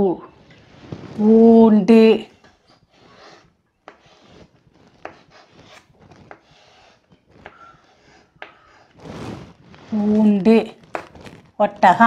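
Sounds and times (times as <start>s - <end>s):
chalk scratching on chalkboard: 0.4s - 12.0s
chalk tapping on board: 2.9s - 9.0s.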